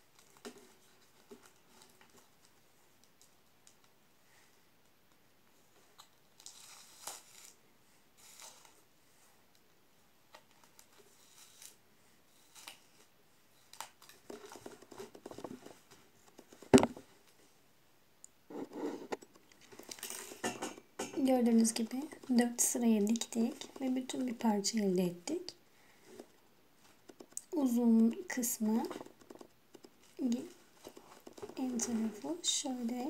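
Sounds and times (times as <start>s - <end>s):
paper rustling and crinkling: 12.4s - 17.4s, 28.7s - 33.0s.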